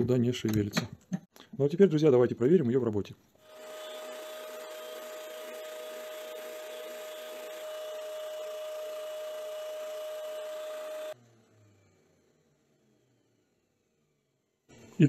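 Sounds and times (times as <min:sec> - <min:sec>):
sander humming: 0:03.4 - 0:12.4.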